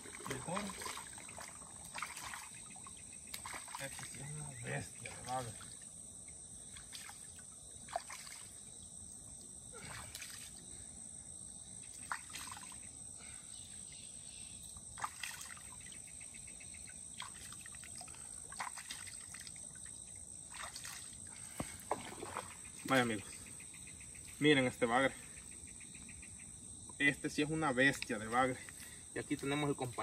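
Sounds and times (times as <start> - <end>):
high insect buzz: 0.0 - 29.9
hands splashing fish in water: 17.2 - 19.6.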